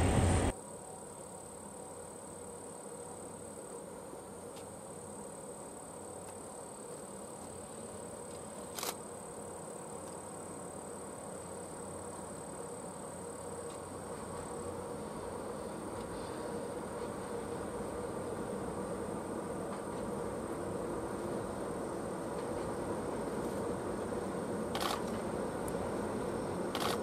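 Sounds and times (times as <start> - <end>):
train rumble: 0.0 - 0.5
insects droning: 0.0 - 27.0.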